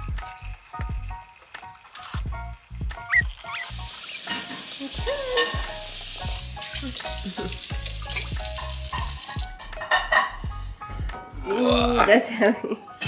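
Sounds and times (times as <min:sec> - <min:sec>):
background music: 0:00.0 - 0:13.0
tap water running into plastic tank: 0:02.7 - 0:09.6.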